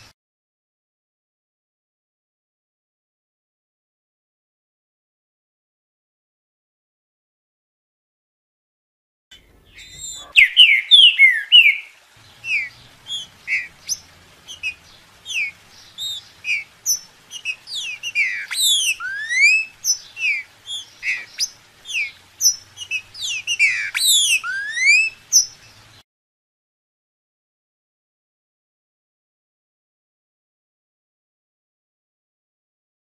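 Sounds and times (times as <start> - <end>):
bird singing whistled phrases: 9.7 - 25.8.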